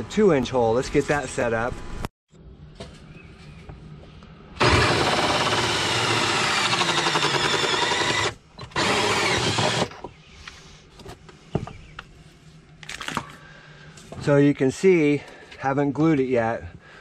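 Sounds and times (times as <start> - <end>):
cordless drill with hole saw: 4.6 - 10.0.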